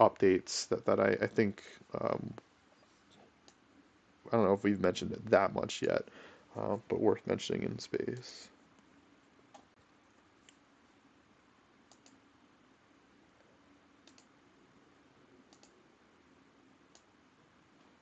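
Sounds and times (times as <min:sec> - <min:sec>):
faint clicks: 0:11.9 - 0:12.2, 0:14.0 - 0:14.3, 0:15.5 - 0:15.8.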